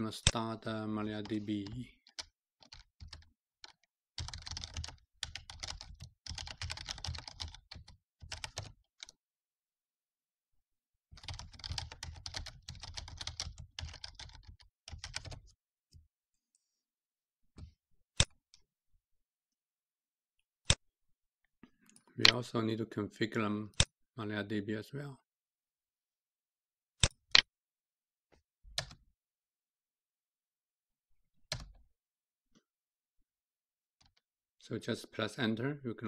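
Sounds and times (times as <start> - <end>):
keyboard typing: 1.6 - 9.2, 11.2 - 15.5.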